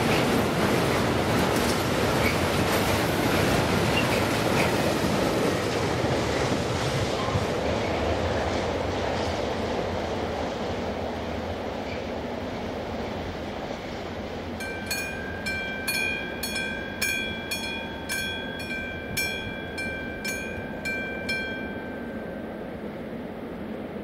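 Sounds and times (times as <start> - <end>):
train rumble: 0.0 - 24.0
level crossing warning bell: 14.6 - 23.5.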